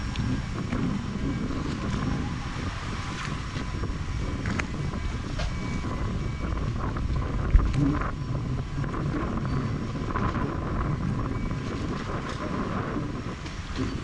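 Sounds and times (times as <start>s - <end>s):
strong wind buffeting microphone: 0.0s - 14.0s
water lapping against boat: 0.0s - 14.0s.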